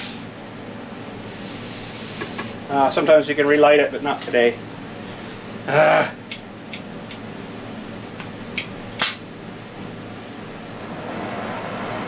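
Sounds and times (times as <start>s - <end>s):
torch flame hissing: 1.3s - 2.7s.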